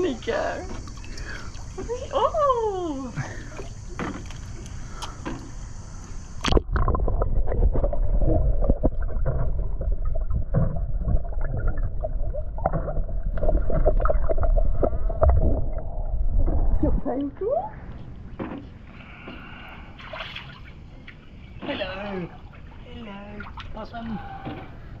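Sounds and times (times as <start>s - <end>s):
faint steady hum: 0.0s - 25.0s
muffled underwater churning: 0.0s - 25.0s.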